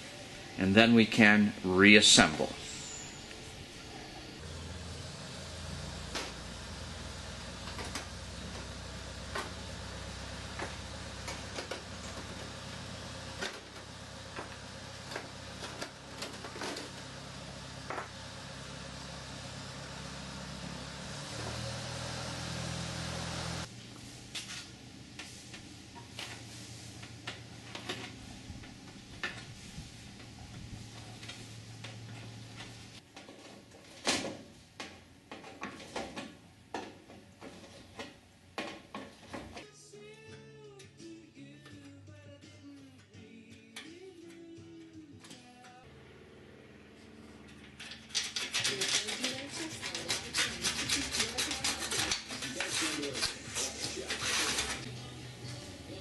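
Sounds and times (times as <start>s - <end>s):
faint background music: 0.0s - 2.8s, 50.9s - 56.0s
deburring tool scraping metal: 47.8s - 54.9s.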